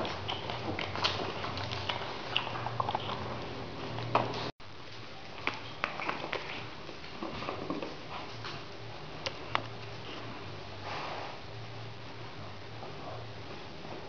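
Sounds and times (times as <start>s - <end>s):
paws and claws tapping on tile: 0.0s - 4.5s, 5.4s - 8.6s
puppies snuffling: 0.0s - 4.5s.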